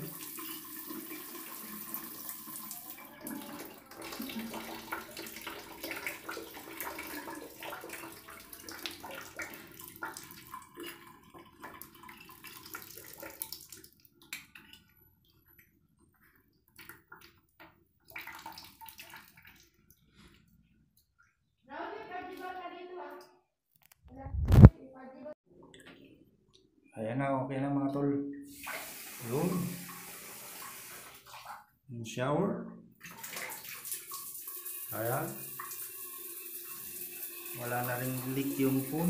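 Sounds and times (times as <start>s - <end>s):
water running from a tap: 0.0s - 14.9s, 18.0s - 19.7s, 28.5s - 31.5s, 33.0s - 39.0s.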